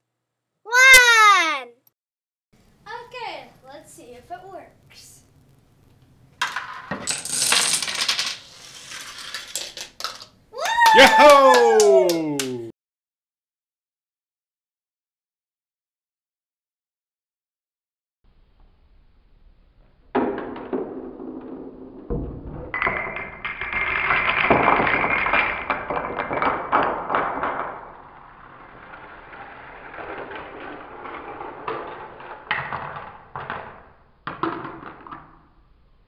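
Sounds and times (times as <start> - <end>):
dominoes toppling clatter: 6.4 - 10.4, 22.8 - 35.4
marble rolling on plastic track: 6.4 - 10.4, 20.2 - 35.6
toy car rolling down track: 6.4 - 10.4, 20.2 - 35.6.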